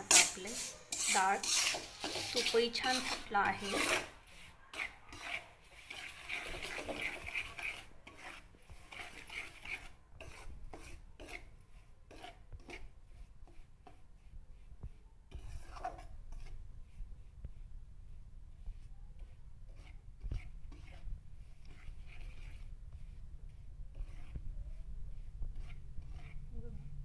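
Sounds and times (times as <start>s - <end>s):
spoon scraping metal pan: 0.0s - 11.5s, 12.1s - 14.0s, 15.3s - 16.6s, 19.7s - 22.7s, 23.9s - 24.4s, 25.6s - 26.5s.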